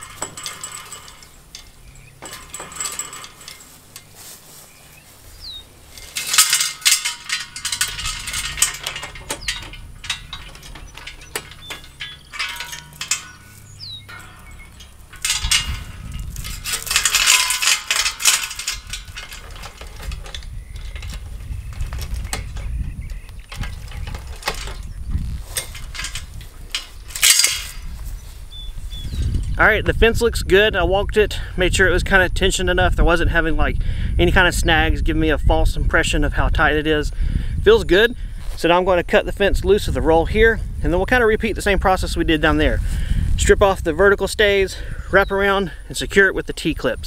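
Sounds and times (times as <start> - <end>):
chains clinking and rattling: 0.0 - 29.6
low rumble: 5.2 - 30.0.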